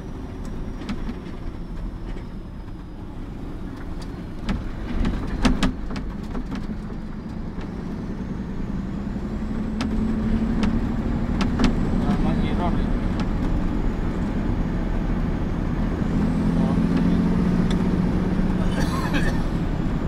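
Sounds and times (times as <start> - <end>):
diesel truck engine running: 0.0 - 20.0
knocks and rattles: 4.4 - 7.7, 9.7 - 12.2.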